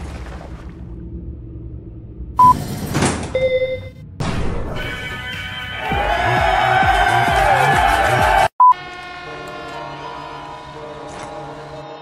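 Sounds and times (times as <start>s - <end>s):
electronic music with deep beat: 4.8s - 8.5s.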